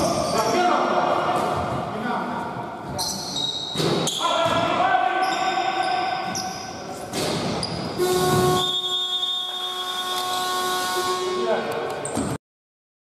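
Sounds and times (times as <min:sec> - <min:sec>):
voices echoing in a gym: 0:00.0 - 0:12.4
steady horn tone: 0:08.0 - 0:11.8.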